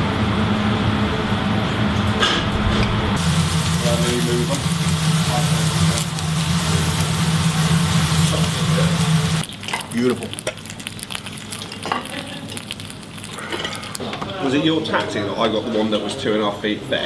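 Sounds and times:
steak sizzling on hot stone: 0:03.2 - 0:14.0.

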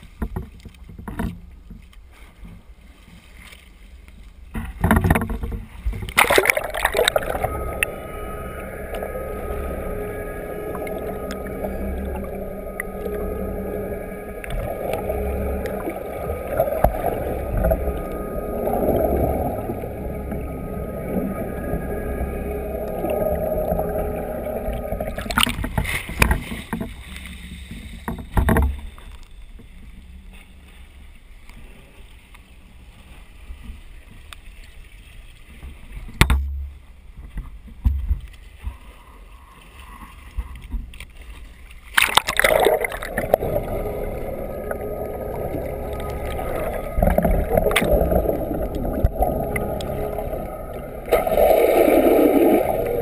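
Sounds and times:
muffled underwater rush: 0:04.6 - 0:28.9, 0:38.7 - 0:53.0
camera splashing into water: 0:06.1 - 0:07.4, 0:41.9 - 0:43.3
steady engine hum: 0:06.1 - 0:28.2, 0:42.4 - 0:53.0.

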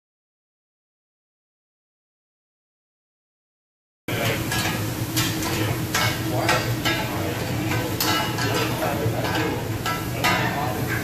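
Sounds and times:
stir-fry sizzling on griddle: 0:04.1 - 0:11.0.

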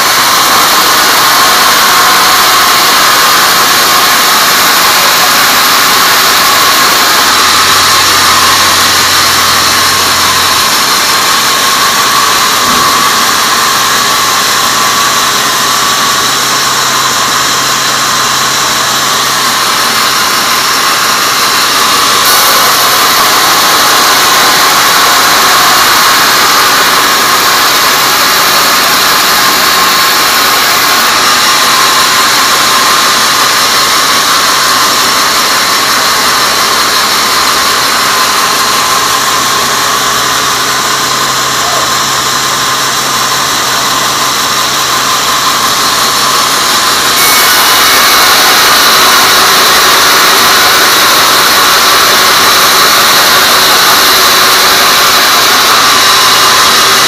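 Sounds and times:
saw blade hissing through wood: 0:45.0 - 0:57.0.

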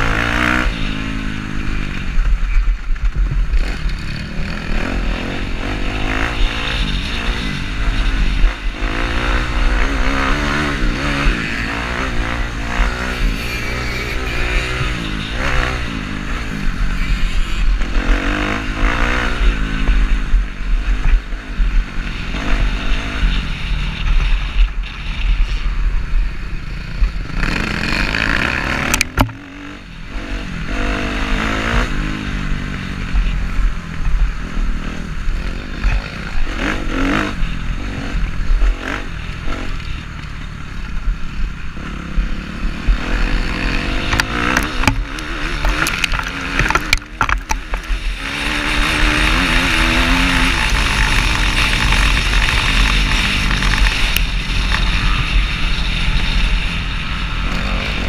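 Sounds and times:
dirt bike engine revving: 0:00.0 - 0:02.5, 0:03.4 - 0:26.0, 0:26.7 - 0:40.2, 0:41.6 - 0:58.0
sharp click: 0:28.8 - 0:29.4.

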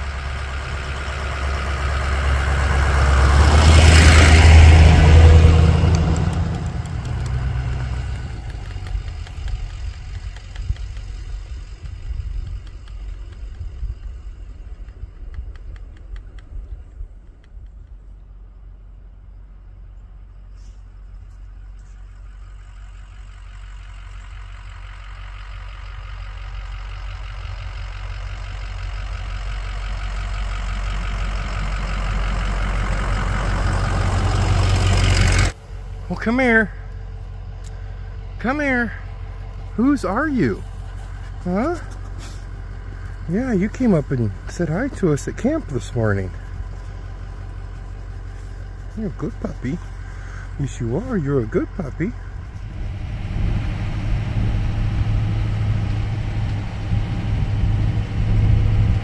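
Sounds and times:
pickup truck driving past: 0:00.0 - 0:12.1, 0:22.2 - 0:59.0.

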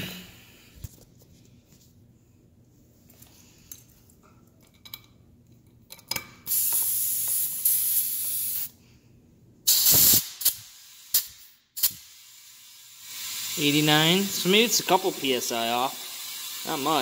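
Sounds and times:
compressed air hissing into tire: 0:06.5 - 0:08.8, 0:09.7 - 0:17.0
short air puffs: 0:06.5 - 0:08.8, 0:09.7 - 0:13.9
loud air burst with thud: 0:09.7 - 0:12.2.

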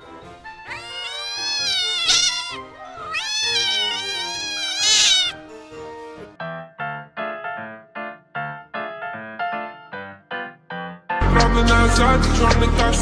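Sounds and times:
quiet background music: 0:00.0 - 0:07.0
cat yowling: 0:00.6 - 0:05.4.

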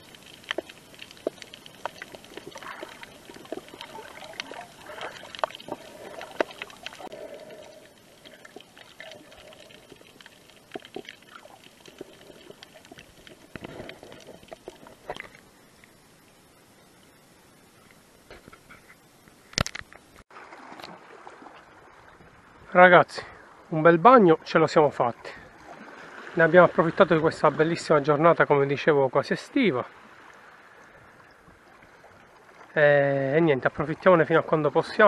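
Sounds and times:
muffled underwater gurgling: 0:00.0 - 0:16.0
steady hiss: 0:00.0 - 0:20.3.

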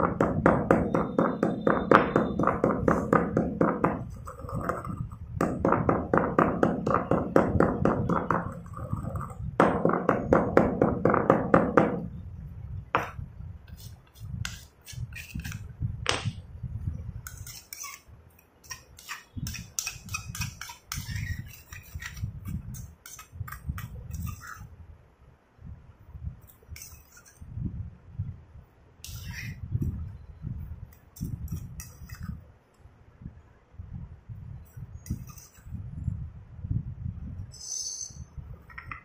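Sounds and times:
pestle pounding in stone mortar: 0:00.0 - 0:04.8, 0:05.4 - 0:08.8, 0:09.6 - 0:12.1
grinding and scraping powder: 0:00.0 - 0:10.2, 0:13.7 - 0:15.7, 0:17.2 - 0:24.7, 0:37.5 - 0:38.3.

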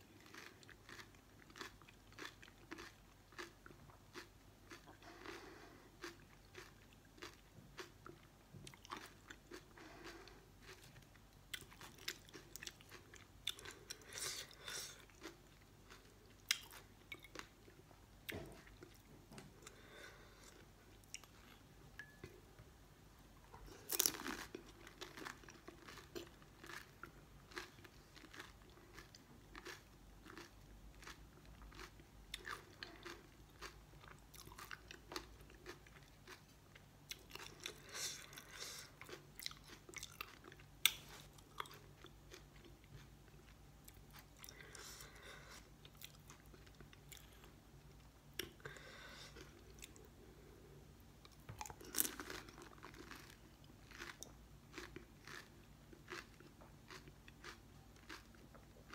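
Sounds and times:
crunching and chewing food: 0:00.0 - 0:22.6, 0:23.4 - 0:58.9.

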